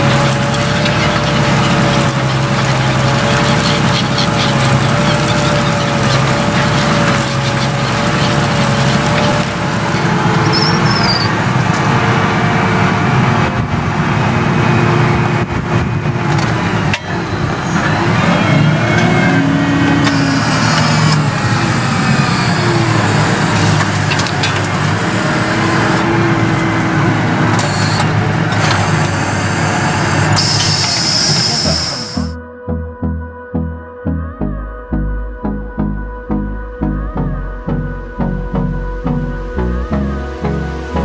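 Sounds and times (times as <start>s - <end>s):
tractor engine droning: 0.0s - 32.8s.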